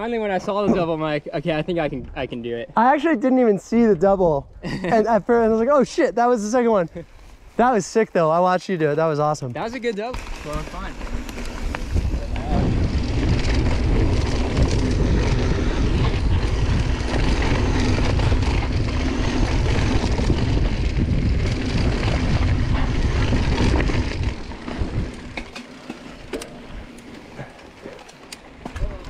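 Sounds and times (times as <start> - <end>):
bike rattling over dirt trail: 5.7 - 29.0
wind on microphone: 11.3 - 25.4.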